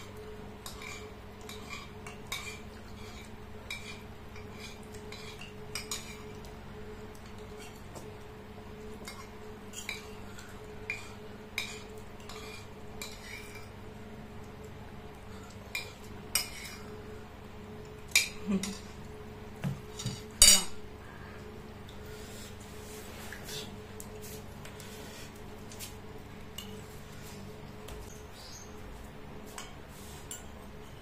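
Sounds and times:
spoons clinking on ceramic bowls: 20.0 - 20.8.

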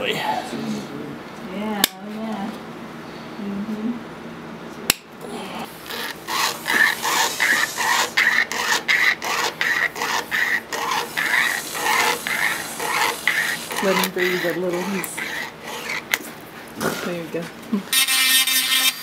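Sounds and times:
wire saw rasping on tooth: 5.6 - 16.3, 17.9 - 19.0.

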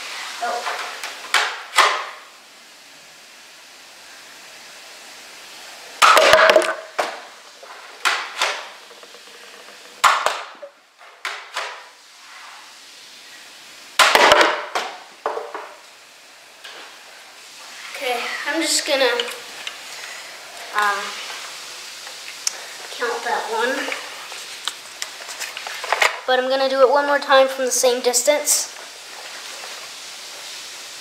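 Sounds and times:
foam darts striking bottles: 1.3 - 2.2, 6.0 - 7.3, 8.0 - 9.0, 10.0 - 11.9, 14.0 - 15.7
plastic bottles clattering on table: 6.0 - 7.2.

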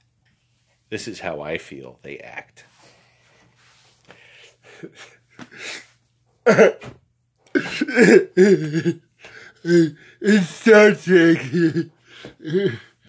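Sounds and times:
man making wordless vocal noises: 7.5 - 9.0, 9.6 - 12.9.

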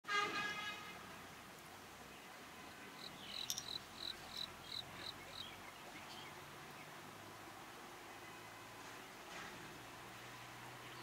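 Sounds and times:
insect chirping: 3.0 - 5.5.

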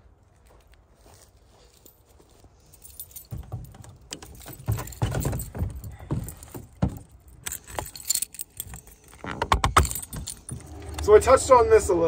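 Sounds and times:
footsteps crunching on icy ground: 0.0 - 3.3
keys jingling: 2.6 - 11.1.

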